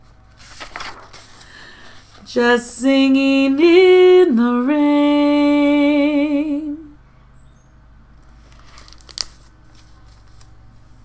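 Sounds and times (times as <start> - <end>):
paper rustling: 0.0 - 2.3, 8.2 - 11.0
woman singing with vibrato: 2.2 - 7.0.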